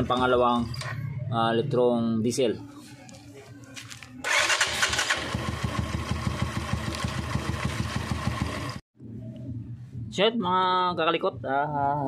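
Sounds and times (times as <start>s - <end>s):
motorcycle engine idling: 4.3s - 8.8s.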